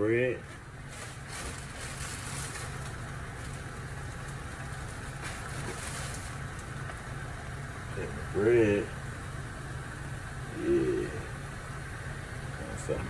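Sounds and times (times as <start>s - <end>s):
steady low hum: 0.0s - 13.0s
plastic bag rustling: 0.4s - 6.9s.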